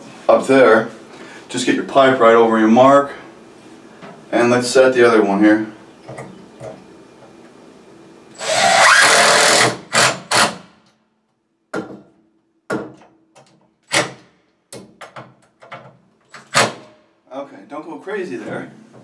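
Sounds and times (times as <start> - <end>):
cordless drill driving screw: 8.4 - 10.6.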